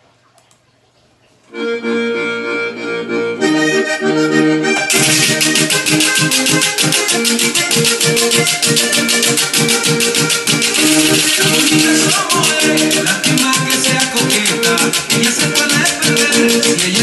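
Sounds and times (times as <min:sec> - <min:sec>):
accordion: 0:01.5 - 0:17.0
band playing: 0:01.6 - 0:17.0
metal scraper on ridged stick: 0:04.9 - 0:17.0.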